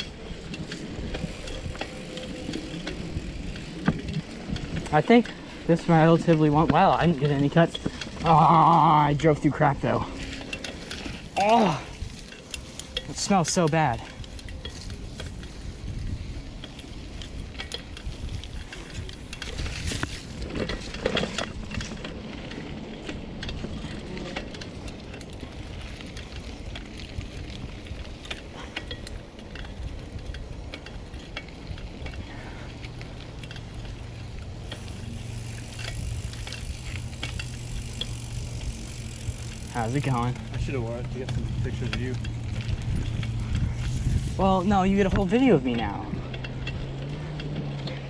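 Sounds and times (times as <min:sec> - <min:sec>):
bicycle rattling and clicking: 0:00.0 - 0:48.0.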